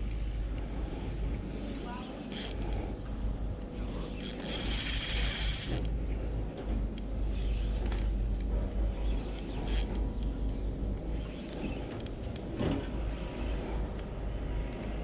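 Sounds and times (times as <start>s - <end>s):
low steady rumble: 0.0s - 15.0s
fishing reel gears cranking: 2.3s - 2.8s, 4.2s - 6.0s, 9.6s - 10.0s.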